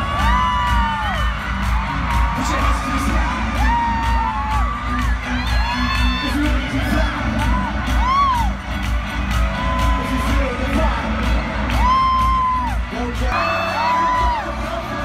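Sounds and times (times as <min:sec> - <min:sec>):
fans screaming and cheering: 0:00.0 - 0:15.0
pop music over loudspeakers: 0:00.0 - 0:15.0
amplified singing voice: 0:09.8 - 0:15.0.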